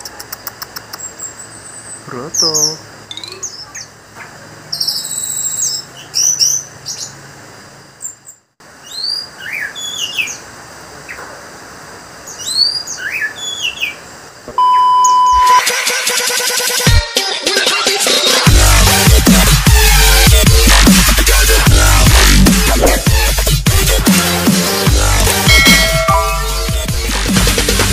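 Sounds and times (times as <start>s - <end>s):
steady beep: 14.6s - 15.6s, 25.5s - 26.8s
thrush singing: 15.6s - 27.7s
loud electronic music: 15.6s - 27.9s.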